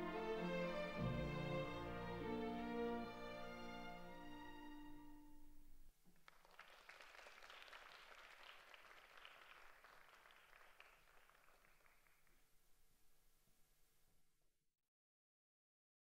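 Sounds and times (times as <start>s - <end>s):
orchestral chord: 0.0s - 5.4s
faint audience applause: 6.1s - 12.6s.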